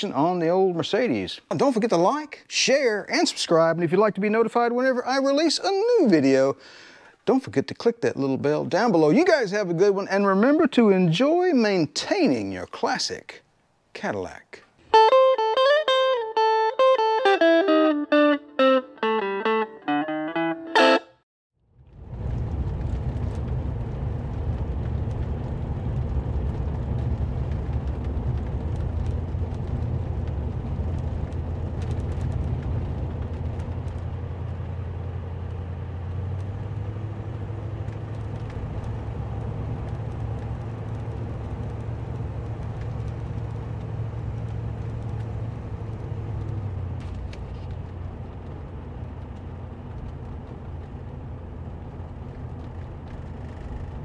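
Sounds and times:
car engine hum while driving: 21.8s - 54.0s.

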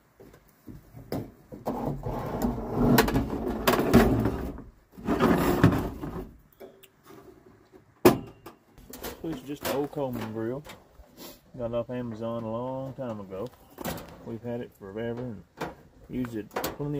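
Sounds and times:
grill scraping against wood: 5.0s - 6.2s.

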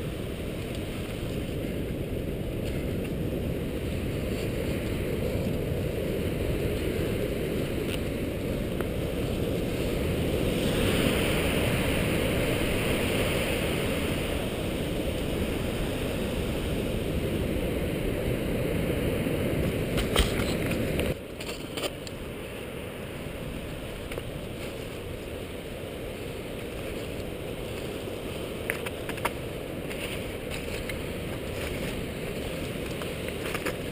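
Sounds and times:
wind buffeting microphone: 0.0s - 21.3s
sea surf: 0.0s - 33.9s.

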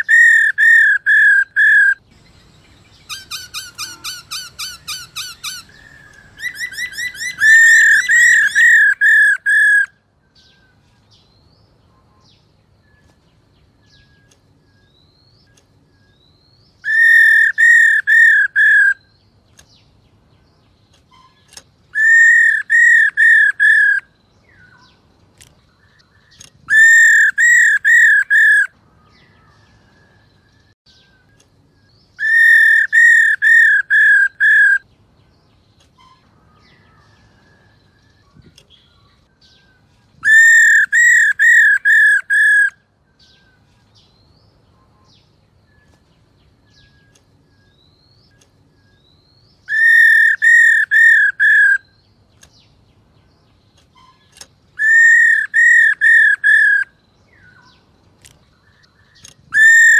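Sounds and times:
bird whistled calls: 0.0s - 10.6s, 16.8s - 19.2s, 21.1s - 24.8s, 26.4s - 28.7s, 32.2s - 34.9s, 39.4s - 43.5s, 48.8s - 52.0s, 53.9s - 57.7s, 59.2s - 59.9s
faint bird chirps: 0.0s - 59.9s.

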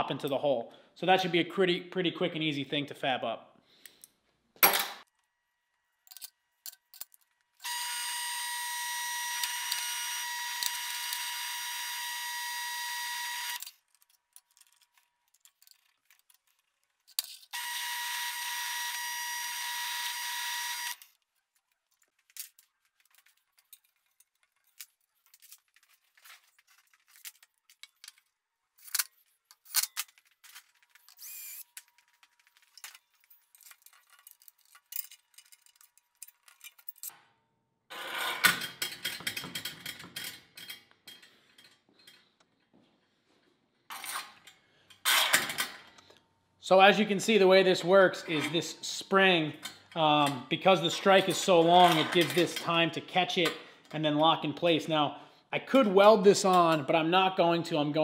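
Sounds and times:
metal parts clicking and knocking: 6.0s - 7.6s, 13.6s - 17.6s, 21.0s - 37.2s, 38.3s - 42.4s.

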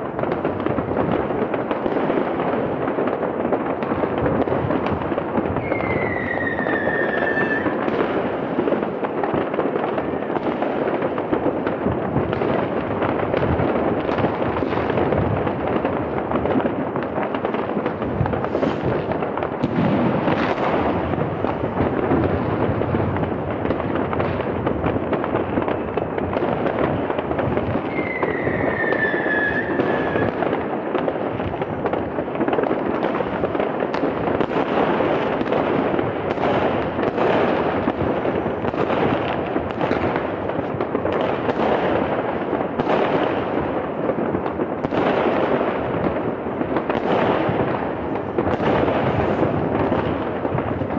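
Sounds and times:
firecrackers crackling and banging: 0.0s - 50.9s
falling firework whistle: 5.5s - 8.0s, 27.8s - 30.5s.

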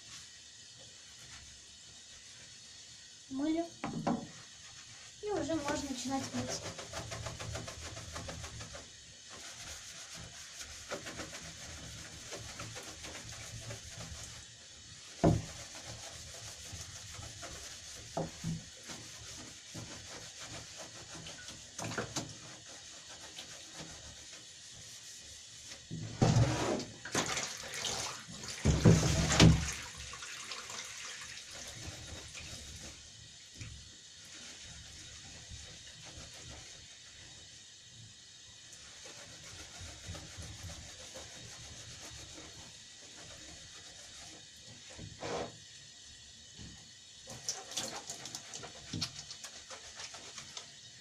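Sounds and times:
water running from tap: 0.0s - 26.2s, 27.0s - 51.0s
sponge scrubbing tray: 3.3s - 26.9s, 27.7s - 37.6s, 38.6s - 45.6s, 46.6s - 51.0s
knocking and splashing: 3.8s - 4.5s, 15.0s - 24.2s, 25.8s - 33.9s, 46.5s - 50.7s.

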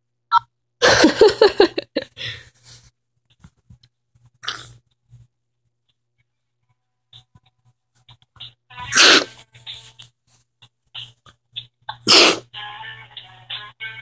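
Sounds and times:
person stifled laughter: 0.8s - 2.4s.

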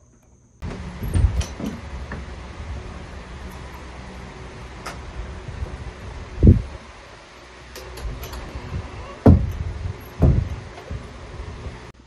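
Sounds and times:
steady low hum: 0.0s - 12.0s
dull thumps: 8.7s - 11.9s.

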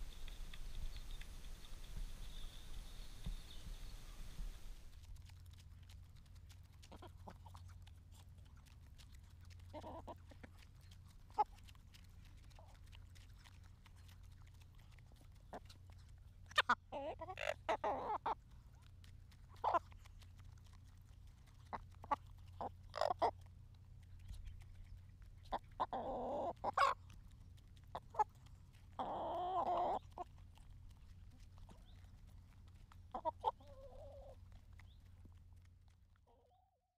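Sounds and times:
beaks ticking on palm: 0.0s - 4.7s
low hum: 0.0s - 6.8s
hens clucking: 9.6s - 10.6s, 16.5s - 18.4s, 19.6s - 20.0s, 21.7s - 23.5s, 25.5s - 27.1s, 27.8s - 30.4s, 33.0s - 35.0s.

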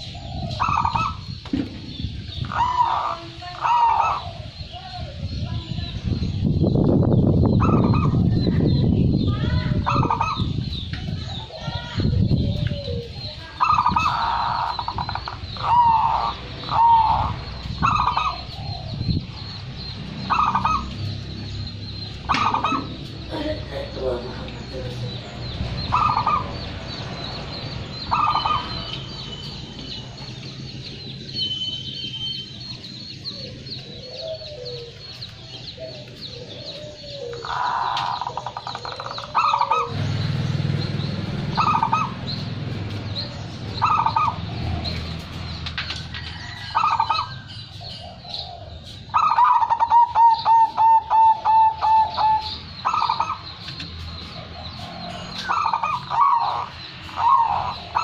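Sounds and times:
dove cooing: 0.0s - 1.4s, 2.3s - 5.2s, 7.5s - 8.7s, 11.2s - 26.7s, 27.9s - 29.0s, 33.0s - 45.6s, 46.4s - 58.0s.

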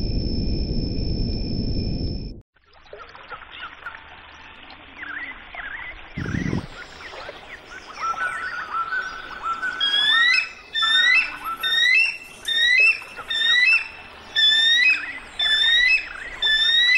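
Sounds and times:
birds chirping: 5.0s - 16.9s.

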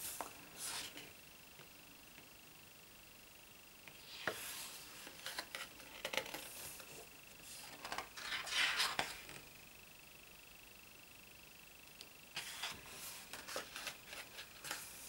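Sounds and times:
thick book pages turning: 0.0s - 1.0s, 4.0s - 9.3s, 12.4s - 15.0s
paper crackle: 5.0s - 9.3s, 12.4s - 15.0s.

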